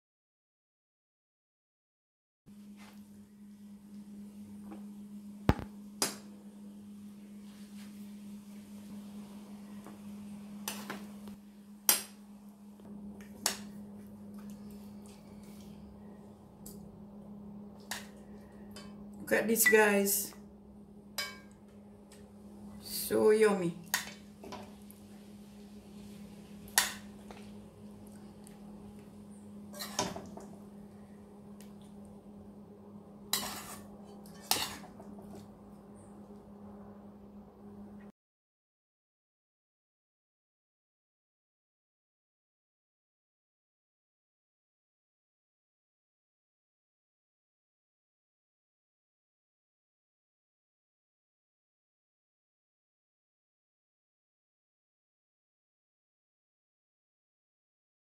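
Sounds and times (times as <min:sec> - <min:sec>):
steady low hum: 0:02.5 - 0:38.1.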